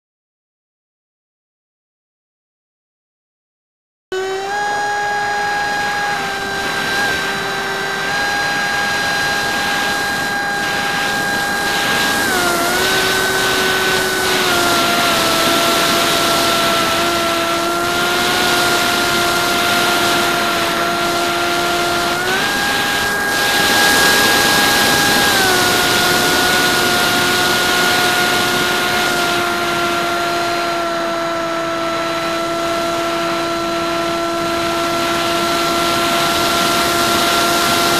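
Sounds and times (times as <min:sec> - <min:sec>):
electric motor whining: 0:04.1 - 0:37.9
wind rush: 0:06.1 - 0:29.1.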